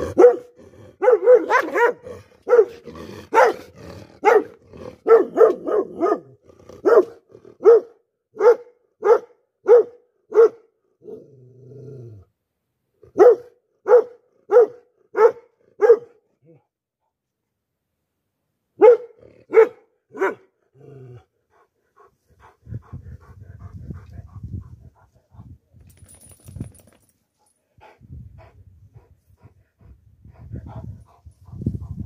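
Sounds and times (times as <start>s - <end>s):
large dog barking: 0.0s - 11.2s, 13.0s - 16.6s, 18.8s - 21.0s.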